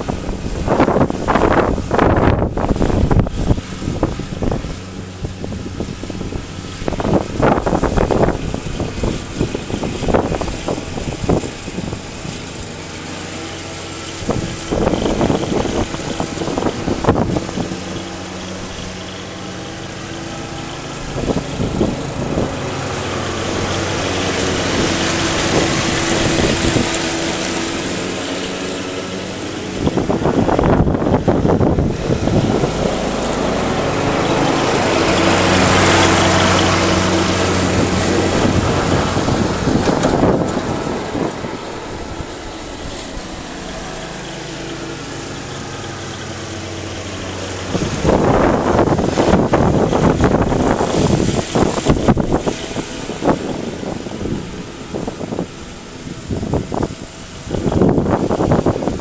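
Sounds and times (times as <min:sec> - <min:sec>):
wind thumps on microphone: 0:00.0 - 0:12.4, 0:23.4 - 0:28.8, 0:29.6 - 0:43.8, 0:47.0 - 0:59.0
riding lawn mower engine: 0:00.0 - 0:59.0.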